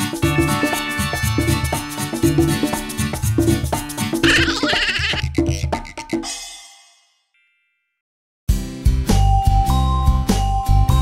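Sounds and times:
children's song instrumental: 0:00.0 - 0:07.2.

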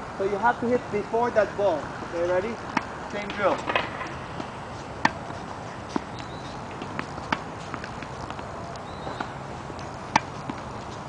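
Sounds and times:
tennis balls bouncing on hard court: 0:02.2 - 0:11.0
tennis balls struck with rackets: 0:02.2 - 0:11.0.

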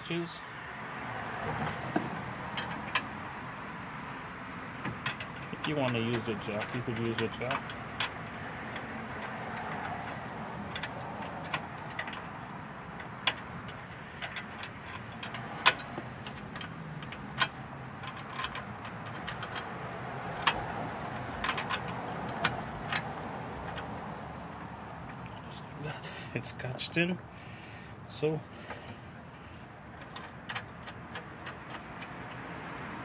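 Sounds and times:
metallic clicks of hardware: 0:04.8 - 0:25.5, 0:30.0 - 0:33.0.

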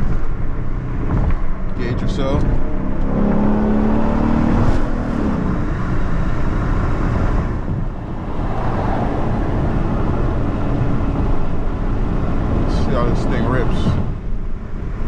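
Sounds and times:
car engine rumbling: 0:00.0 - 0:15.0
road and tyre noise: 0:00.0 - 0:15.0.

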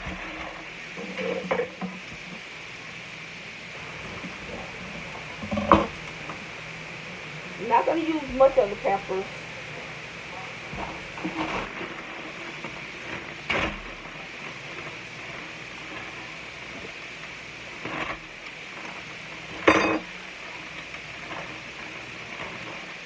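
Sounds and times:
steady background hiss: 0:00.0 - 0:23.0
dishes and utensils clinking: 0:01.0 - 0:02.0, 0:19.6 - 0:20.1.

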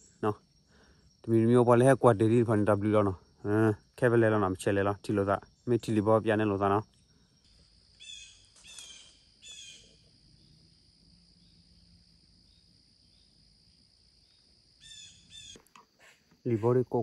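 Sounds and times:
bird calling: 0:08.0 - 0:10.0, 0:14.8 - 0:17.0.

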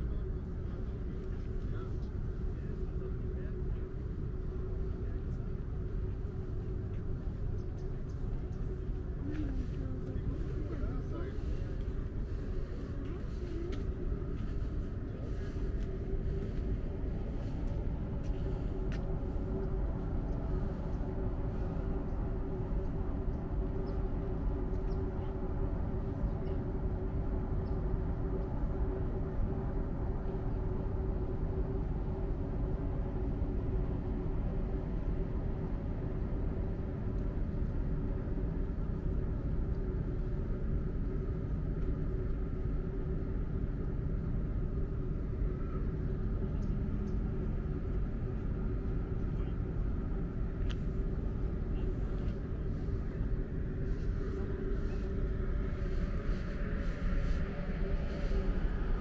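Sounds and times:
vehicle rumble: 0:00.0 - 0:59.0.

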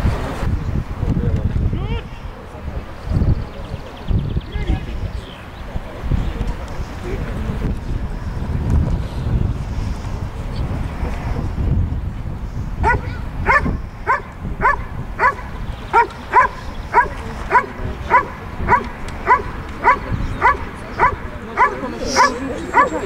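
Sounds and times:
wind rumble on microphone: 0:00.0 - 0:23.0
dog barking: 0:12.8 - 0:23.0.

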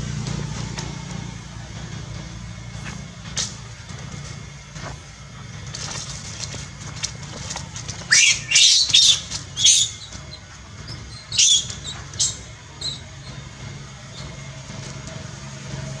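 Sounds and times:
monkey screaming: 0:08.0 - 0:10.4, 0:11.1 - 0:13.0.

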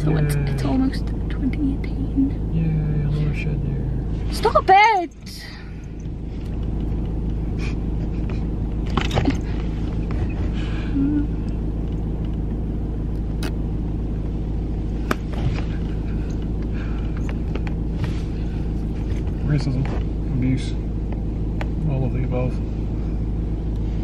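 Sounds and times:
car engine rumble inside cabin: 0:00.0 - 0:24.0.

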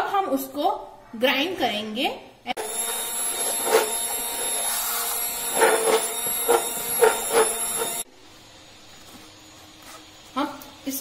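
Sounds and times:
hand blender running: 0:02.6 - 0:08.1
blender knocking on pot: 0:05.5 - 0:08.0.

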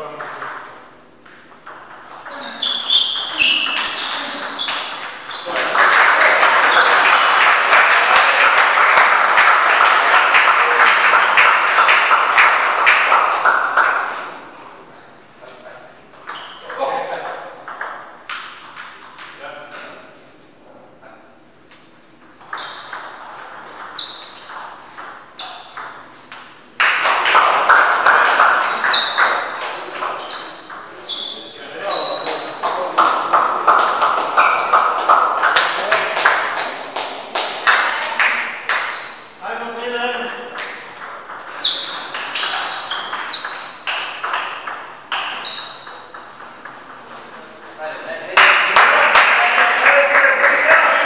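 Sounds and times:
table tennis ball bouncing: 0:00.0 - 0:07.7, 0:16.1 - 0:19.4, 0:22.2 - 0:31.3, 0:40.1 - 0:47.8
spectators applauding: 0:04.3 - 0:14.2, 0:26.8 - 0:29.4, 0:48.4 - 0:51.0.

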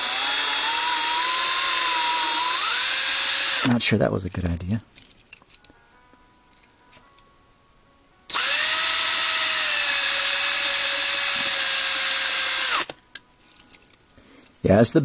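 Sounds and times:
cordless drill drilling into metal: 0:00.0 - 0:03.8, 0:08.3 - 0:12.9.

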